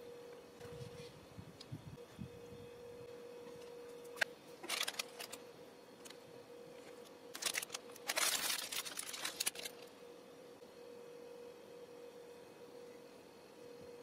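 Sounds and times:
faint steady tone: 0.0 - 14.0
plastic wrapper crinkling and tearing: 4.6 - 5.4, 7.3 - 9.9.

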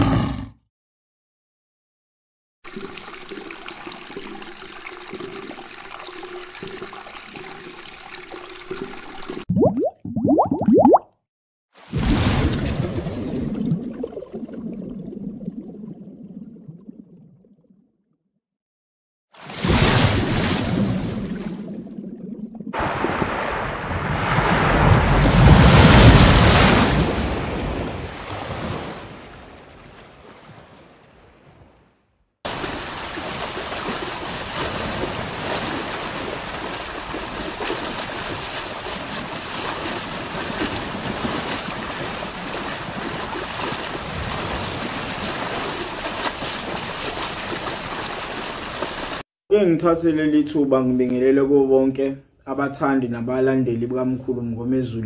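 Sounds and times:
sea surf breaking on shore: 22.8 - 31.7, 32.5 - 49.2
rushing water gurgling: 32.5 - 49.2.

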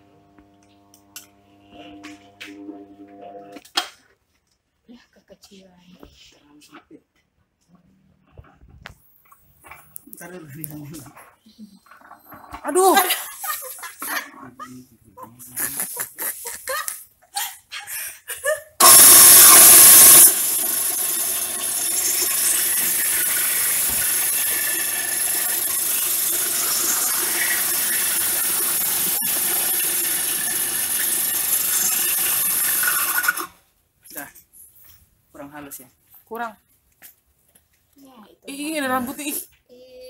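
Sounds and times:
coffee grinder grinding: 18.8 - 33.6.

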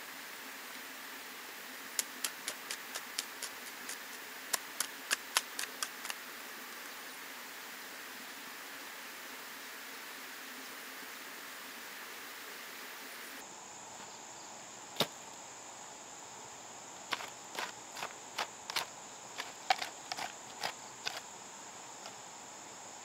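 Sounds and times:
crickets droning: 0.0 - 23.0
hoe chopping into soil: 15.0 - 15.2, 17.1 - 21.2.

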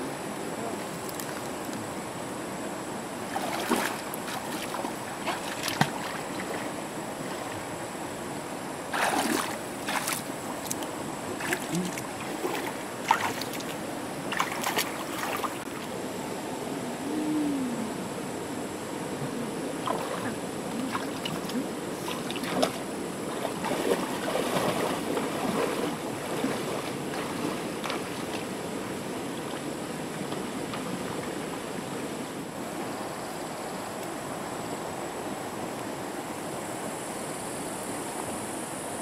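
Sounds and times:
shallow river hissing: 0.0 - 39.0
feet wading and splashing: 3.3 - 7.6, 8.9 - 15.9, 19.8 - 31.6.

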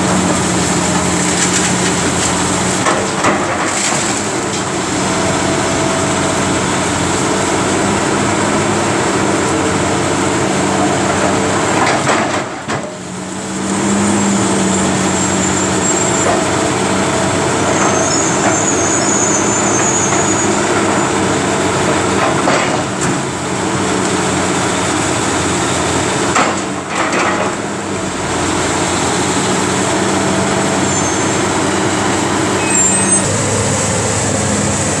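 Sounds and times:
excavator diesel engine: 0.0 - 35.0
debris crunching: 0.1 - 4.6.

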